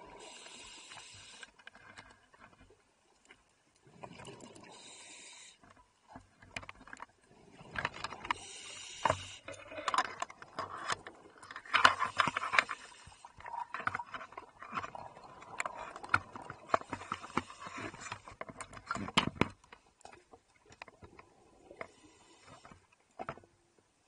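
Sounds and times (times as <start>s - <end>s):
underwater exhaled bubbles: 3.8s - 5.0s.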